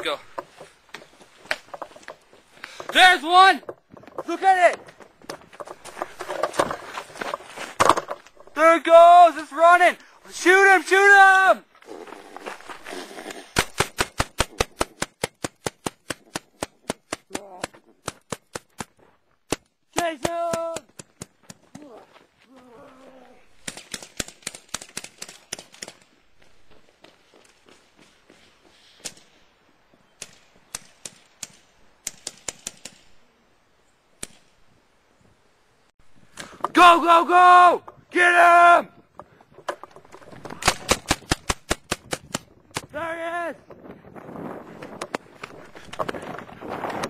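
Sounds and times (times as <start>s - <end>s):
rapid gunshot cracks: 13.6s - 17.4s, 40.6s - 42.9s.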